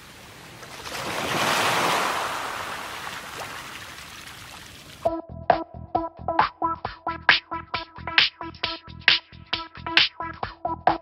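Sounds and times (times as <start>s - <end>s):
ocean waves crashing: 0.0s - 5.0s
electronic music with steady beat: 5.1s - 11.0s.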